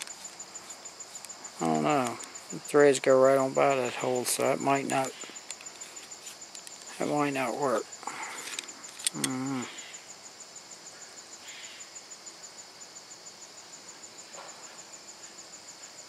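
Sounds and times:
crickets chirping: 0:00.0 - 0:16.0
man murmuring: 0:01.6 - 0:05.1, 0:09.1 - 0:09.8.

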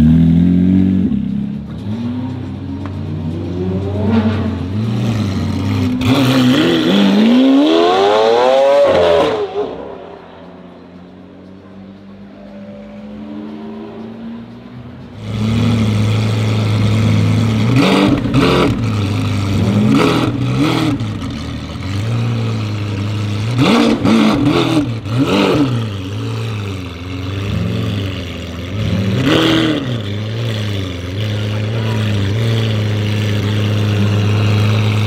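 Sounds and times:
sports car engine revving: 0:00.0 - 0:35.0.

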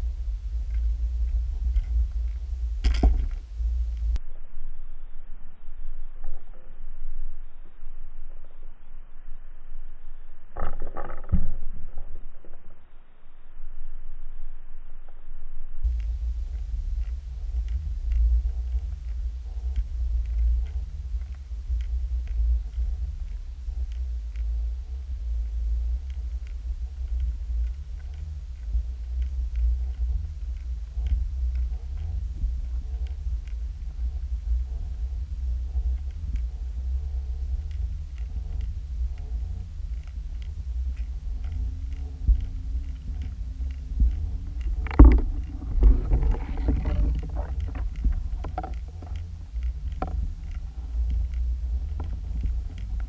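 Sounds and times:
faint ticks: 0:00.0 - 0:04.2, 0:15.8 - 0:53.0
low underwater rumble: 0:00.0 - 0:53.0
rough scraping noise: 0:43.6 - 0:50.6.

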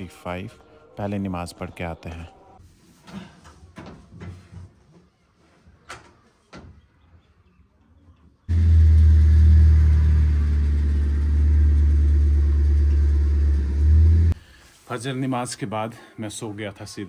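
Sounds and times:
car engine and road rumble: 0:08.5 - 0:14.4.

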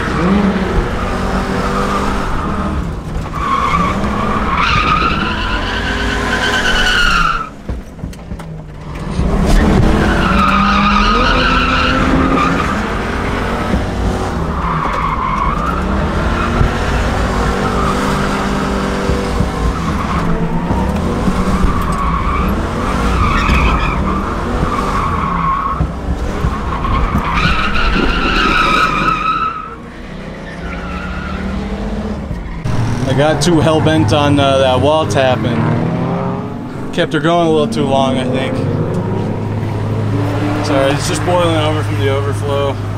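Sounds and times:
tyres squealing: 0:00.0 - 0:07.9, 0:08.6 - 0:35.4
car engine revving: 0:00.0 - 0:42.9.

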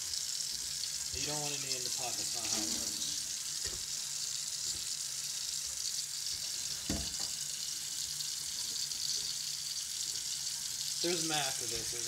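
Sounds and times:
tap water running into sink: 0:00.0 - 0:12.0
thump: 0:06.9 - 0:07.3.

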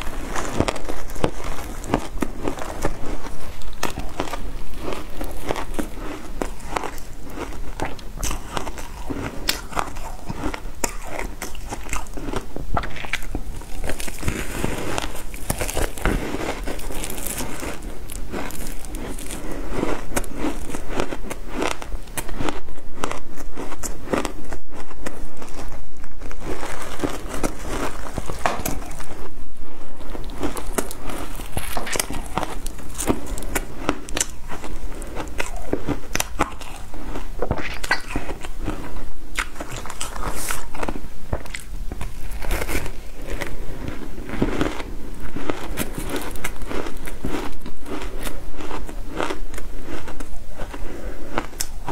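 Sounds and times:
shaved ice crunching: 0:13.0 - 0:20.8.

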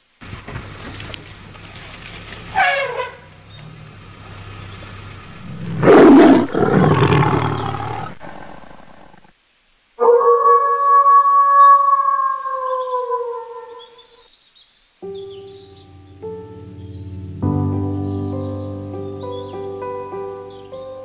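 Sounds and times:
elephant trumpeting: 0:02.5 - 0:03.3, 0:05.3 - 0:09.3.

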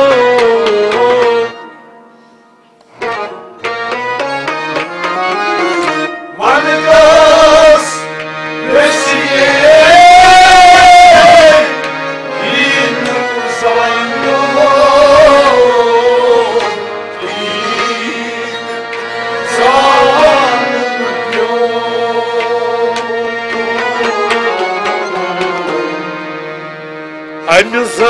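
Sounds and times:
harmonium melody: 0:00.0 - 0:28.0
person singing: 0:08.7 - 0:26.2.

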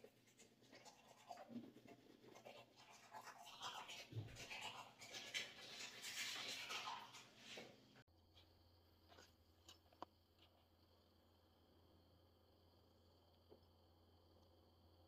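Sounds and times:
toothbrush scrubbing teeth: 0:00.0 - 0:08.0.

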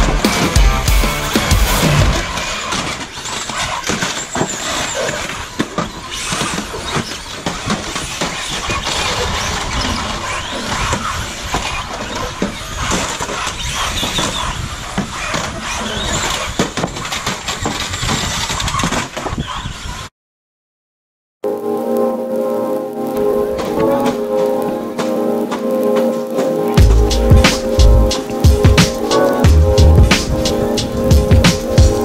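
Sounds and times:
tyres squealing: 0:00.0 - 0:19.7
plastic cars crashing: 0:01.5 - 0:20.0.

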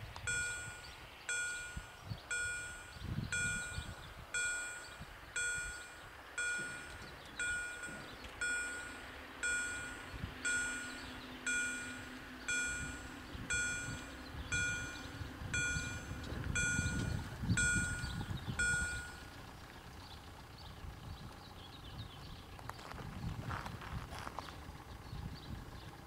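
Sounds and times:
low hum of barrier drives: 0:00.0 - 0:26.0
level-crossing warning bell: 0:00.2 - 0:19.5.

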